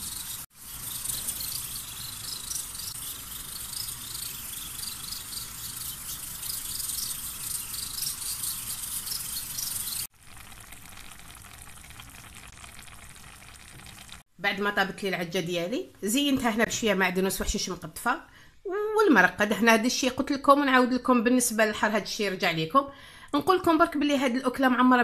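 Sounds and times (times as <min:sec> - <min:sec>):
sauce simmering and sizzling: 0:09.4 - 0:14.3.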